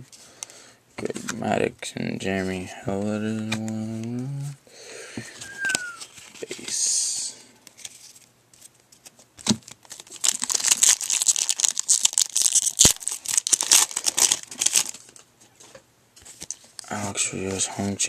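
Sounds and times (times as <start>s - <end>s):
foil crinkling: 9.4s - 15.2s
foil wrapper tearing: 9.6s - 15.1s.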